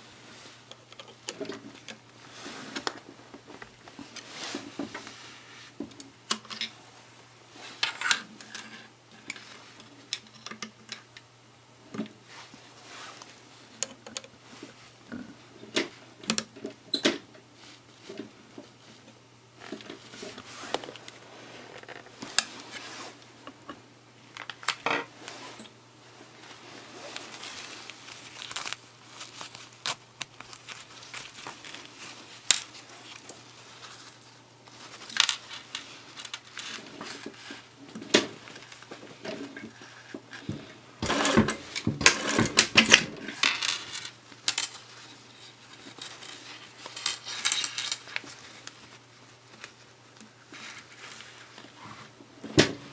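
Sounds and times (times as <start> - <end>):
fabric rustling: 25.1 - 41.8.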